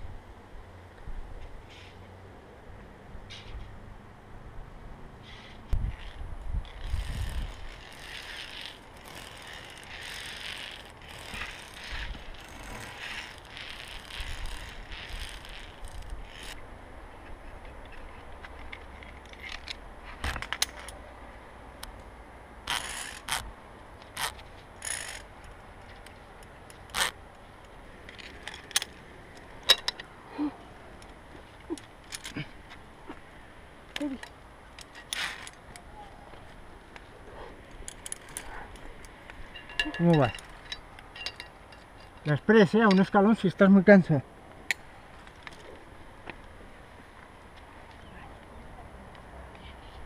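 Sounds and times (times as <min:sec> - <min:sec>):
carabiners scraping on steel cable: 0:05.2 - 0:16.6, 0:17.9 - 0:21.0, 0:22.6 - 0:27.2, 0:28.0 - 0:30.1, 0:31.7 - 0:32.5, 0:34.0 - 0:35.6, 0:37.6 - 0:43.4.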